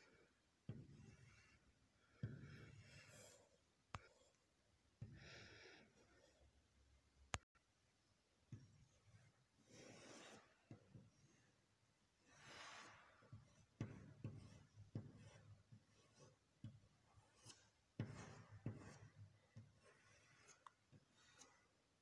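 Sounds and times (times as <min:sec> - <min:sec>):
chalk scratching on chalkboard: 0:00.7 - 0:03.7, 0:08.6 - 0:11.6, 0:12.2 - 0:21.8
chalk tapping on board: 0:13.2 - 0:21.6.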